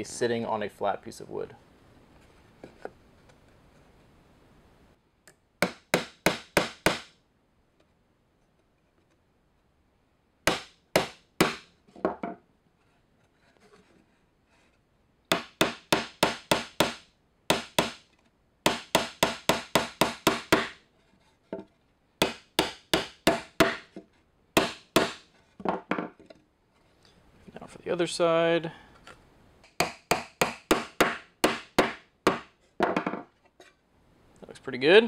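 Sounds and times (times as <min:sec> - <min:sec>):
hammer driving nails into wood: 0:05.6 - 0:07.2, 0:10.5 - 0:11.7, 0:15.3 - 0:18.1, 0:18.7 - 0:20.8, 0:22.2 - 0:24.0, 0:24.6 - 0:26.0, 0:29.6 - 0:33.2.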